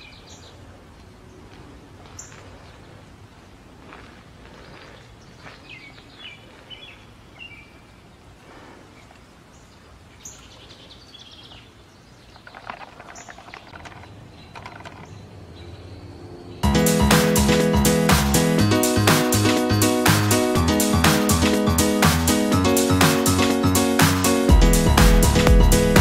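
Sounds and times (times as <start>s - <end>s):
birds chirping: 0.0s - 26.0s
steady low background: 16.6s - 26.0s.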